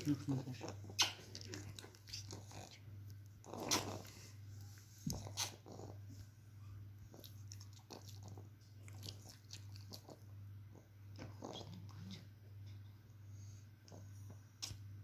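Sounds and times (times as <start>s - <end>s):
mouth smacking and clicking: 0.9s - 2.7s, 3.4s - 4.1s, 14.6s - 14.8s.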